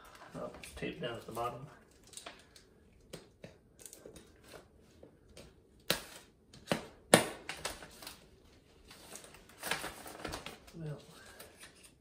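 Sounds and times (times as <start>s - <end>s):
tape and plastic wrap peeling: 0.6s - 3.2s.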